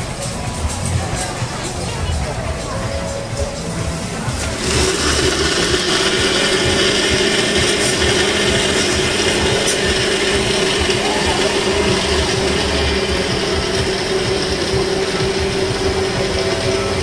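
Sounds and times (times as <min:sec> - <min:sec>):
blender running at high speed: 0:04.3 - 0:17.0.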